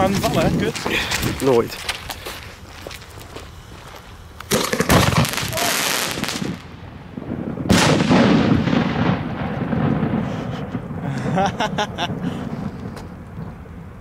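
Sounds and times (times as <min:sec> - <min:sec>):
crackling hissing spray: 0:00.0 - 0:06.8
firework shell bang rumbling: 0:06.2 - 0:11.4.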